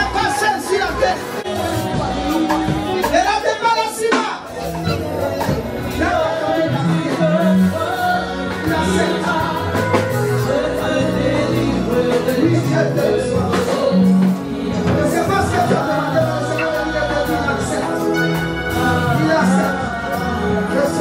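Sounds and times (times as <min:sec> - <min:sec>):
band playing steady beat: 0:00.0 - 0:21.0
woman singing gospel: 0:00.6 - 0:03.4.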